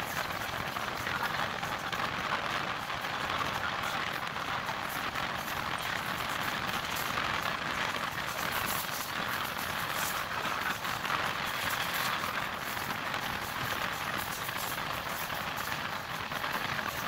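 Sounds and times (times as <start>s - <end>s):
train wheels on rails: 0.0s - 17.0s
wind rushing along train: 0.0s - 17.0s.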